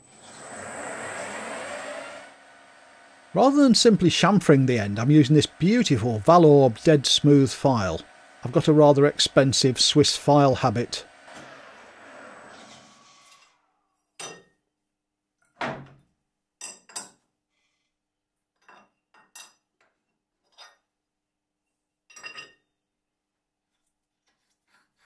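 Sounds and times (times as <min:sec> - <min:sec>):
lathe spindle winding down: 0:00.0 - 0:13.4
metal tools clinking and knocking: 0:22.1 - 0:22.6.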